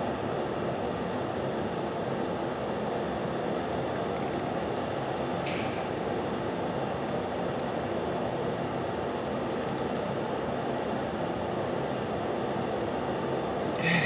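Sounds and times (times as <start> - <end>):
torque wrench ratcheting ticks: 9.4 - 9.9.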